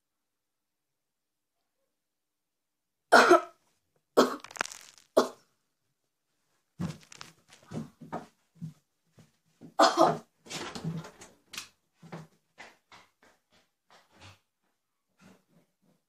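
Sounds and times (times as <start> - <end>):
girl coughing and spluttering: 3.1 - 3.6, 4.2 - 5.4, 9.8 - 10.3.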